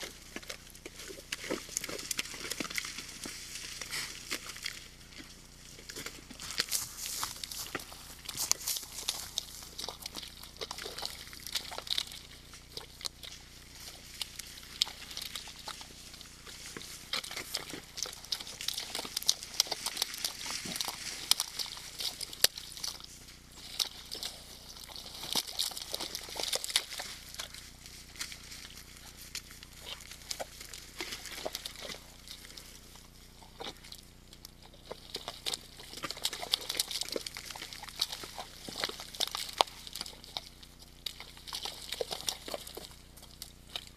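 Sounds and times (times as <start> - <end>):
hooves squelching in wet mud: 0.0 - 43.9.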